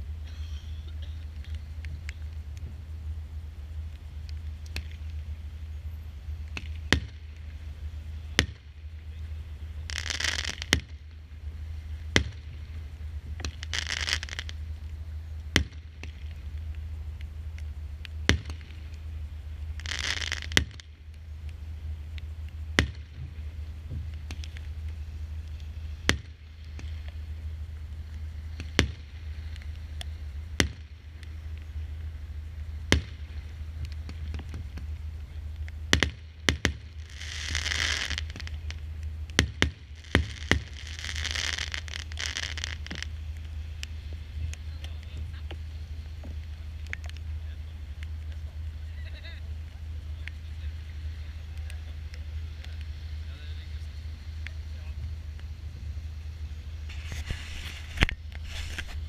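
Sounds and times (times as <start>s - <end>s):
firework hissing bursts: 0.0s - 35.2s, 35.8s - 44.8s, 50.0s - 59.0s
low rumble: 0.0s - 59.0s
firework bangs: 6.4s - 14.8s, 15.4s - 16.9s, 17.9s - 46.6s, 56.8s - 59.0s.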